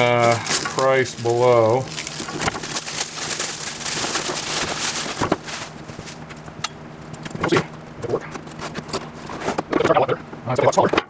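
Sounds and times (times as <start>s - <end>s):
cardboard packaging rustling: 0.0s - 6.5s.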